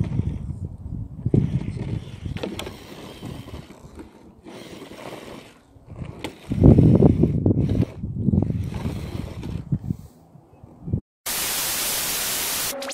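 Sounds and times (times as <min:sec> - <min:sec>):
tyres scrabbling: 0:01.2 - 0:09.8
toy car motor running: 0:01.3 - 0:09.7.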